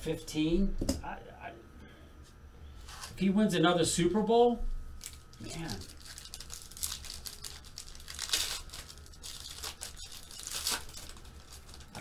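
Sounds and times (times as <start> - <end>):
foil wrapper tearing and crinkling: 5.0 - 12.0.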